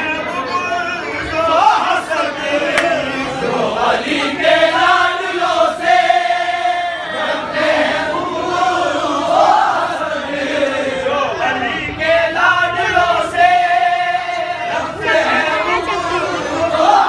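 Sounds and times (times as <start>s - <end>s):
men singing in chorus: 1.3s - 17.0s.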